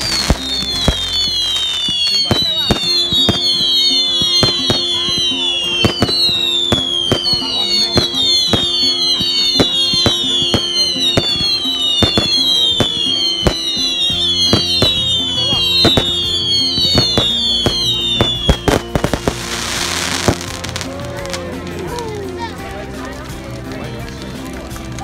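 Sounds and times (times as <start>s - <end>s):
falling firework whistles: 0.0s - 20.7s
fireworks bangs and crackles: 0.0s - 25.0s.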